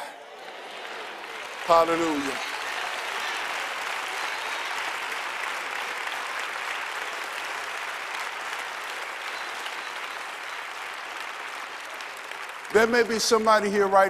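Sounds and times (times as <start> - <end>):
crowd applauding: 0.0 - 14.0.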